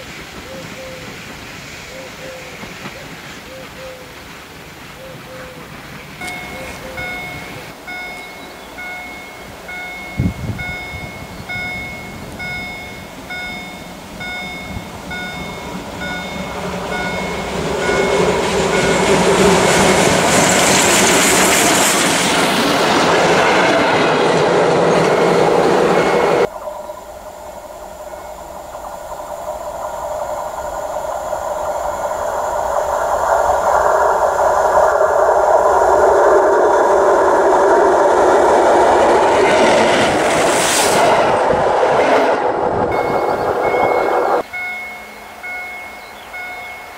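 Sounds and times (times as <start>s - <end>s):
train passing on track: 0.0s - 46.9s
repeating electronic beep: 42.9s - 46.9s.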